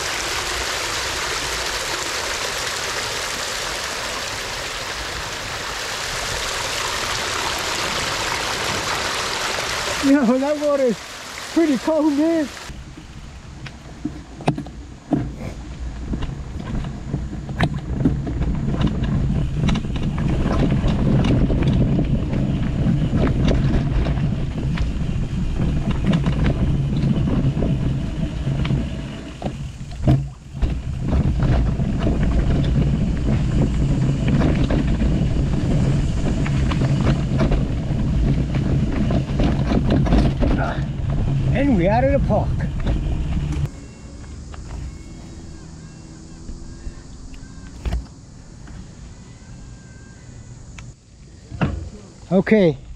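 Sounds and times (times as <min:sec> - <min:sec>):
tyres rumbling over dirt: 0:00.0 - 0:49.2
wind buffeting microphone: 0:04.0 - 0:43.7
bike clicks and knocks: 0:13.6 - 0:25.0, 0:35.9 - 0:40.8.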